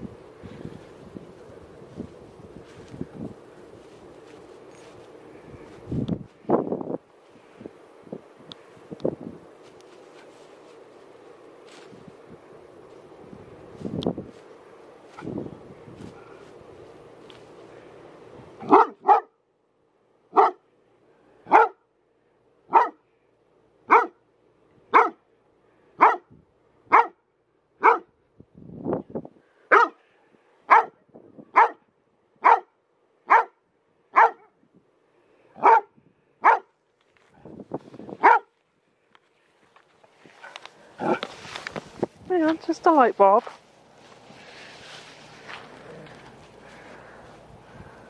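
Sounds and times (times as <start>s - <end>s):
dog barking: 18.6s - 19.4s, 20.3s - 20.6s, 21.5s - 21.8s, 22.7s - 23.0s, 23.9s - 24.2s, 24.9s - 25.2s, 26.0s - 26.3s, 26.9s - 27.2s, 27.8s - 28.1s, 29.7s - 30.0s, 30.7s - 31.8s, 32.4s - 32.7s, 33.3s - 34.5s, 35.6s - 36.7s, 38.2s - 38.5s.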